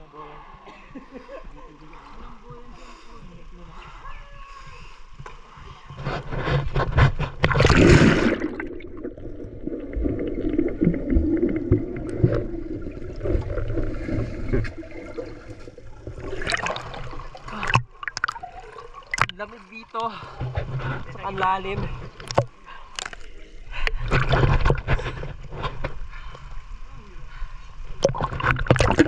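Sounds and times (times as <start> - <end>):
muffled underwater rumble: 1.9 - 18.1
water splashing: 1.9 - 26.0, 27.9 - 29.0
small underwater clicks: 22.1 - 24.8.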